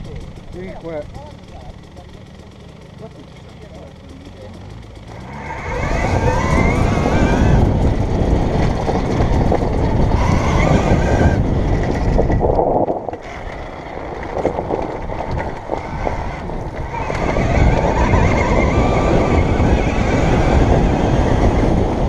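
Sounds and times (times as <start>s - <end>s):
electric motorbike whining: 0.0s - 22.0s
rumbling over rough dirt: 0.0s - 22.0s
heavy wind noise: 5.4s - 22.0s.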